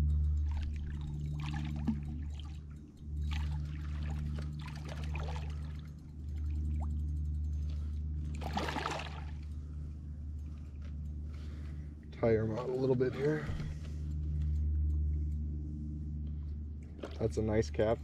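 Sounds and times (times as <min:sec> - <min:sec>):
water splashing and trickling: 0:00.0 - 0:09.7, 0:16.8 - 0:18.0
steady low hum: 0:00.0 - 0:18.0.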